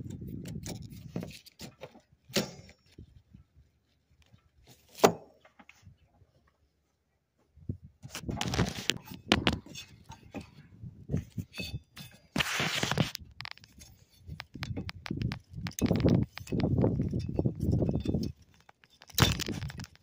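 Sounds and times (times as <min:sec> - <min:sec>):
plastic clicks and scrapes: 0:08.1 - 0:10.6, 0:11.2 - 0:20.0.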